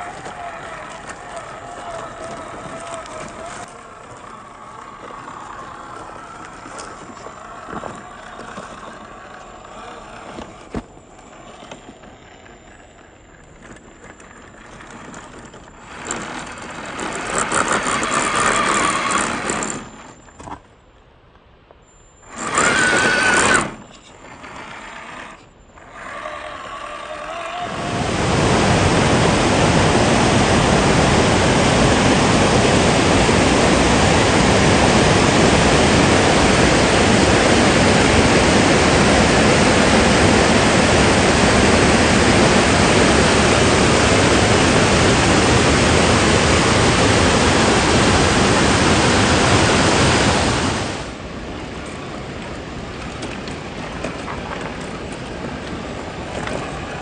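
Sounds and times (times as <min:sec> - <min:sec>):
rc car electric motor revving: 0:15.8 - 0:19.9, 0:22.3 - 0:23.8, 0:24.4 - 0:27.7
loud rushing noise: 0:27.6 - 0:51.8.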